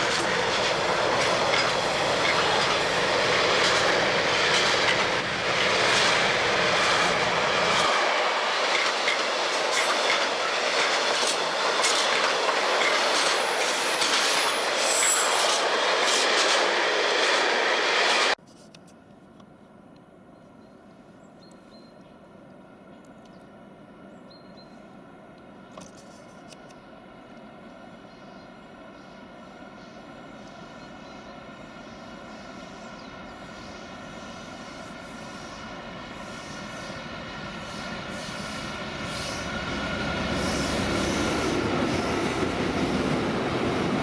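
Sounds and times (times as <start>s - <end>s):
wheels clattering over rail joints: 0.0s - 16.7s
train wheels squealing: 12.8s - 16.6s, 29.5s - 43.2s.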